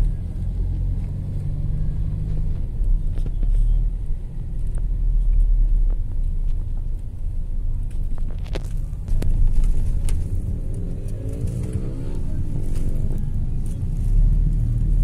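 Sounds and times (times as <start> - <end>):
car engine: 0.0 - 15.0
road noise: 0.0 - 15.0.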